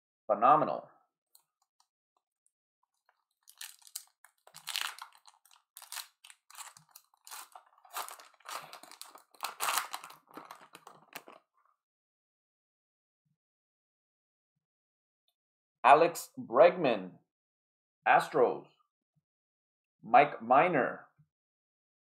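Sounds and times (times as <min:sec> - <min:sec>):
foil wrapper tearing and crinkling: 0:03.3 - 0:11.4.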